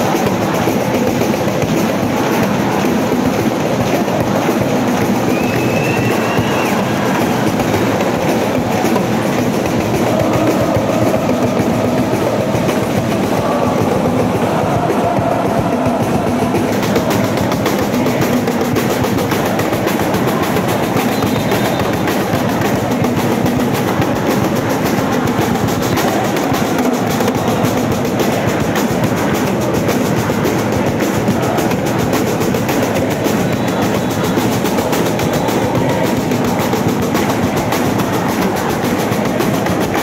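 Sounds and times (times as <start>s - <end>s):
crowd chanting: 0.0s - 40.0s
drum beat: 0.0s - 40.0s.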